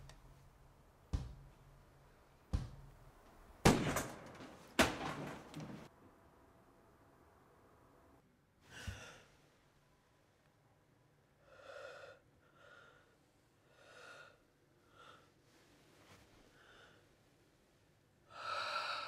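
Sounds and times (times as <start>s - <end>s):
woman breathing heavily: 11.4s - 15.4s, 16.5s - 17.2s, 18.3s - 19.0s.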